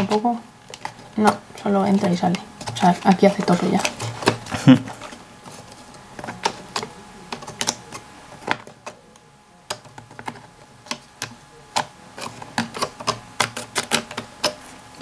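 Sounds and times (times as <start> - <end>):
wooden pieces clicking and tapping: 6.2 - 9.0, 9.7 - 14.6.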